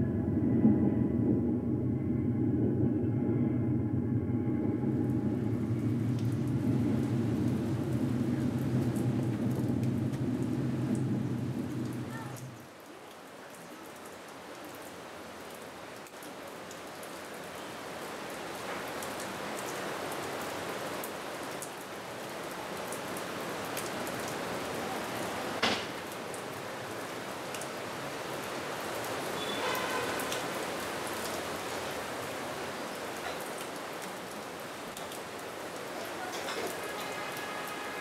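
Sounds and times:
water rushing: 0:00.0 - 0:38.0
sharp knock: 0:25.6 - 0:25.9.

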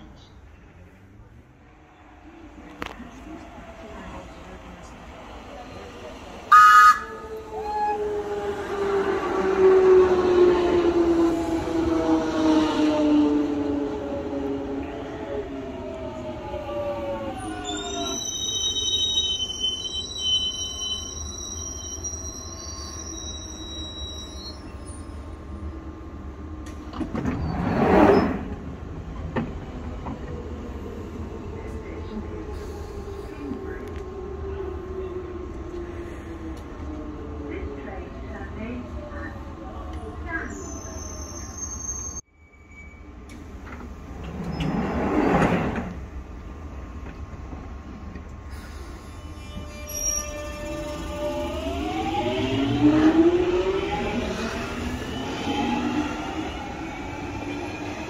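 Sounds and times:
train low rumble: 0:00.0 - 0:18.4, 0:23.9 - 0:40.6
train brakes squealing: 0:17.3 - 0:25.2, 0:40.4 - 0:43.3, 0:48.5 - 0:52.4
train doors sliding shut: 0:26.6 - 0:30.5, 0:42.9 - 0:46.2.

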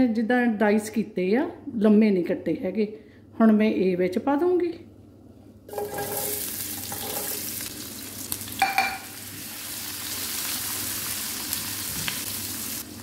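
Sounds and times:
spatula scraping pan: 0:05.7 - 0:07.4
onions sizzling in oil: 0:05.7 - 0:13.0.

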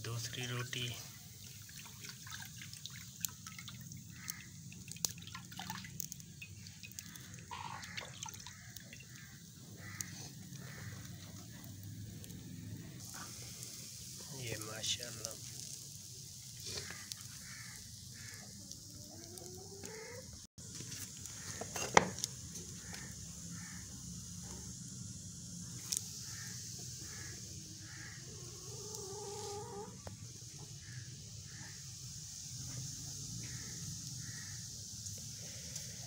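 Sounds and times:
faint hiss: 0:00.0 - 0:36.0
chickens clucking: 0:18.6 - 0:20.4, 0:28.2 - 0:30.1.

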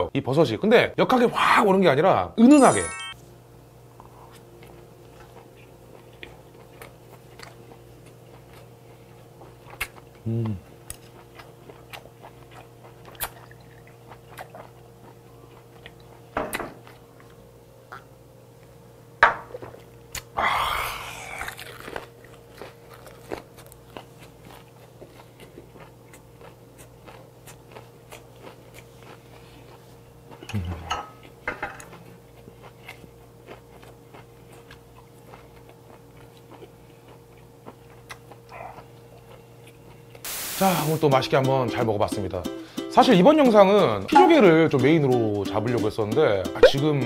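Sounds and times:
person chewing with wet clicks: 0:04.6 - 0:18.7, 0:19.7 - 0:20.4, 0:21.2 - 0:40.3.

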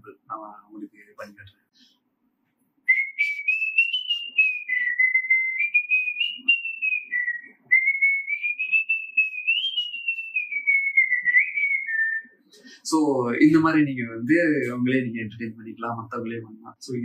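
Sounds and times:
man whistling a tune: 0:02.9 - 0:12.4.

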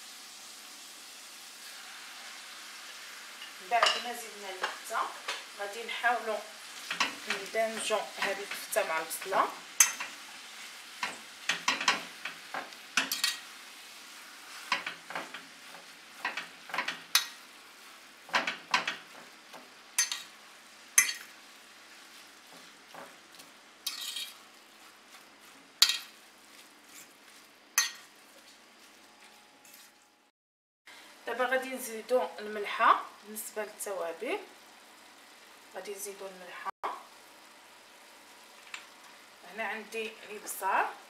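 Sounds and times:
faint sizzle: 0:00.0 - 0:30.3, 0:30.9 - 0:41.0
metal spoon scraping a steel pan: 0:23.8 - 0:24.4.

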